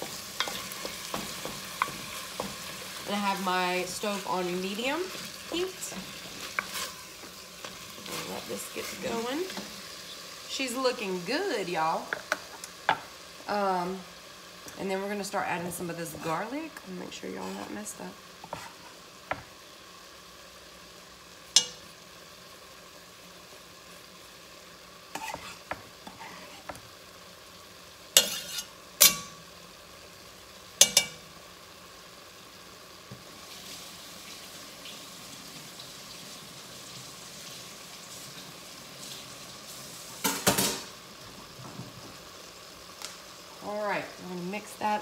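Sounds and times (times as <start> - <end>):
wooden spoon stirring: 0.0 - 4.2, 5.1 - 9.6
meat sizzling in a pot: 0.0 - 45.0.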